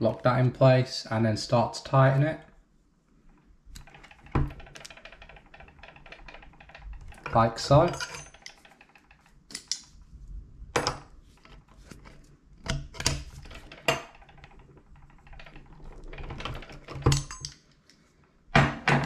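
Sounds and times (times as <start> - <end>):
metal tools clicking on pipe: 7.0 - 9.9, 16.9 - 18.0.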